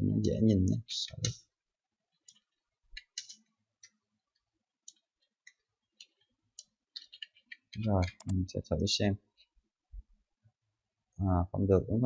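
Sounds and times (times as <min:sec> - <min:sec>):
computer keyboard keystrokes: 0:04.9 - 0:08.4.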